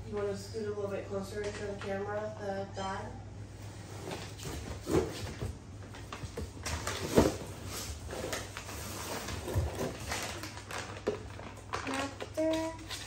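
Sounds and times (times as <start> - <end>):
rustling of packaging: 4.0 - 13.0.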